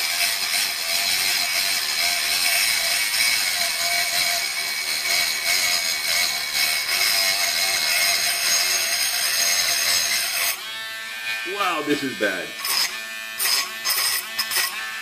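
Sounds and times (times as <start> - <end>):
rotary tool grinding steel: 0.0 - 15.0.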